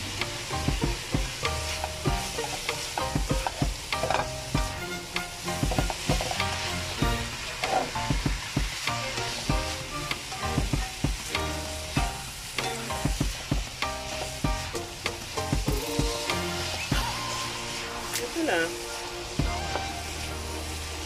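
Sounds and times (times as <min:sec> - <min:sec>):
food sizzling in a pan: 0:00.0 - 0:21.0
spatula scraping a wok: 0:00.1 - 0:14.7.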